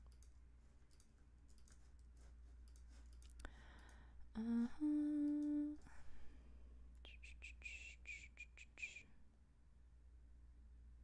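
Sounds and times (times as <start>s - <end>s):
computer keyboard typing: 0.0s - 4.0s
woman humming: 4.3s - 5.9s, 7.0s - 9.0s.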